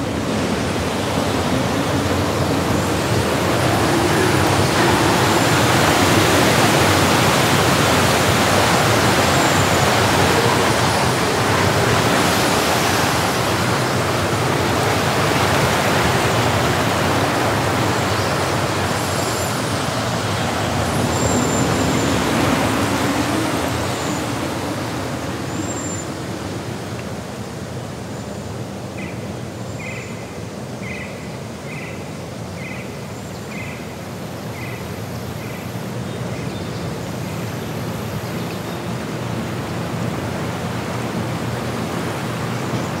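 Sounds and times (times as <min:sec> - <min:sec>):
mountain stream rushing: 0:00.0 - 0:43.0.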